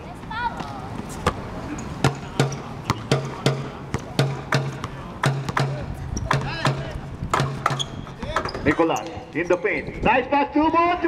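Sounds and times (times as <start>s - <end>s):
basketball bouncing on hard court: 2.0s - 8.7s.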